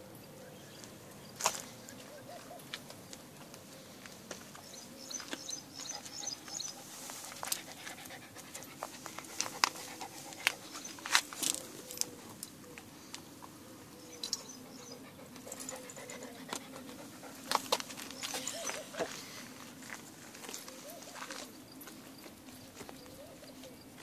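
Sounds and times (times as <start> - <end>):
small dog panting: 5.7 - 11.1, 14.5 - 19.1.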